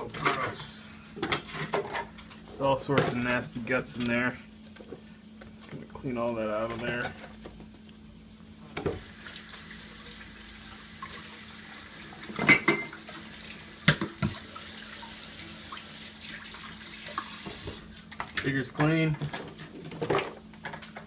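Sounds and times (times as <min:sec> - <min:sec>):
faucet water running into sink: 0:08.9 - 0:18.0.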